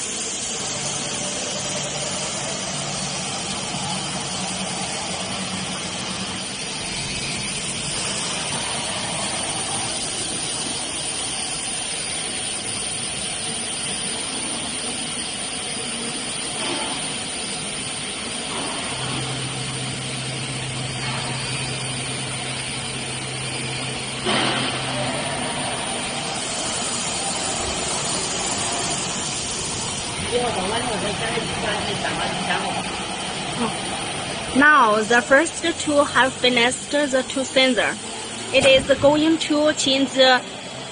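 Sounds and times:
router machine noise: 18.5 - 40.9
burst of noise with hiss: 22.8 - 34.4.

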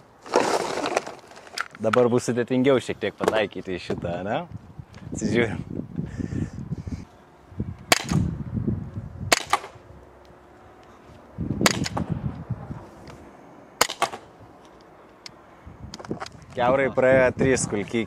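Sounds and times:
pistol shots: 7.9 - 8.3, 9.3 - 9.8, 13.8 - 14.3
second crack after shot: 7.9 - 8.3, 9.3 - 9.8.

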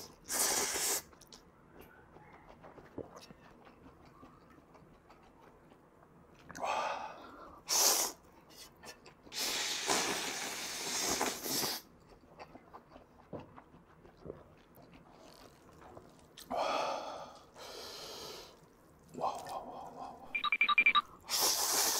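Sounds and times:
noodles slurped loudly: 0.0 - 1.4, 9.3 - 11.9
soft chewing and mouth clicks: 0.0 - 7.6, 8.2 - 9.4, 11.0 - 16.6, 17.2 - 21.1.

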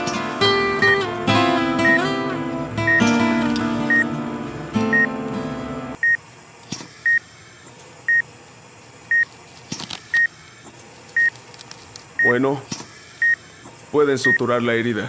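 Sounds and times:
guitar music: 0.0 - 6.0
heart monitor beeping: 3.9 - 4.1, 4.9 - 5.1, 13.2 - 13.4.

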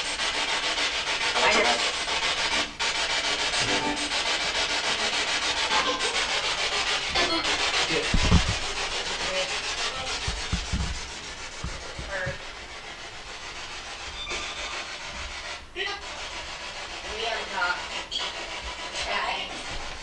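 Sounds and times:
low thumps: 7.1 - 13.6
radio static hiss chopped by scanning: 7.2 - 8.7.

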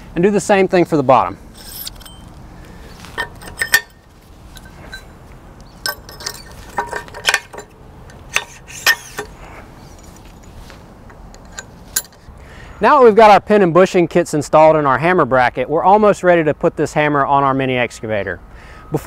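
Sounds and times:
metal pins clinking on steel: 1.5 - 2.4, 3.0 - 12.3.

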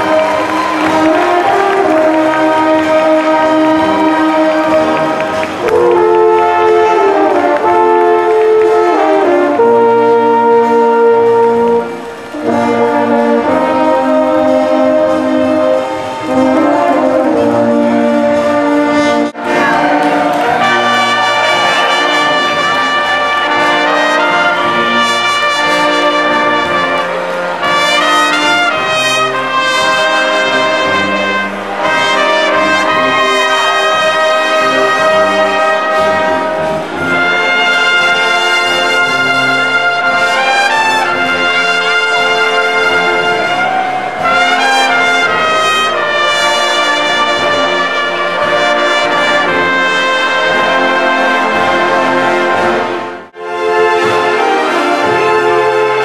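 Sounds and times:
brass band playing: 0.0 - 56.0.

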